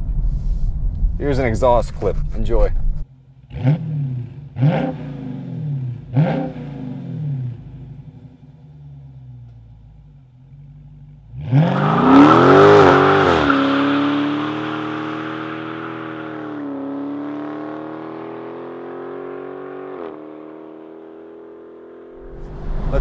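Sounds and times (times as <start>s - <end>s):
car engine revving and accelerating: 3.4s - 9.3s, 11.2s - 23.0s.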